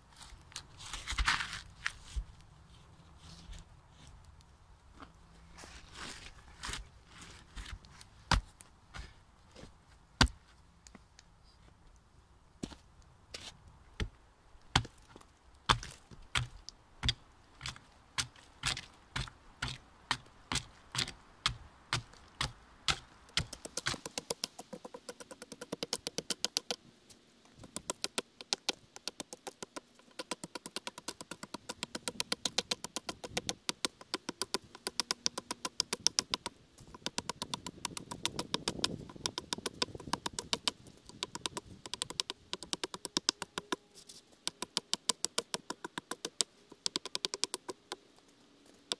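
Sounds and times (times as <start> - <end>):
axe chopping log: 14.7 - 15.0, 15.7 - 24.4.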